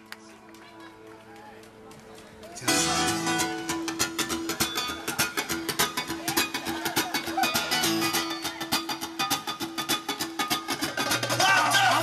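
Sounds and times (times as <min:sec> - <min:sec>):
live guitar-led instrumental music: 0:02.6 - 0:12.0.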